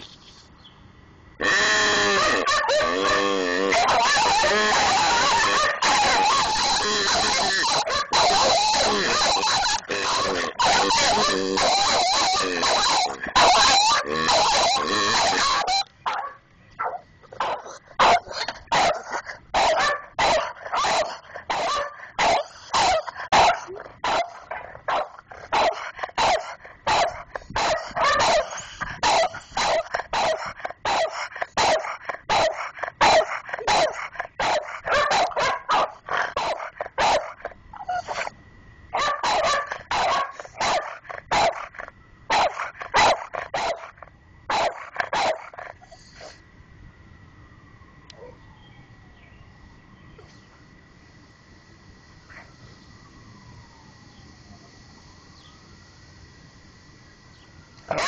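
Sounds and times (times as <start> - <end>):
dogs barking: 1.4 - 38.3, 38.9 - 46.4.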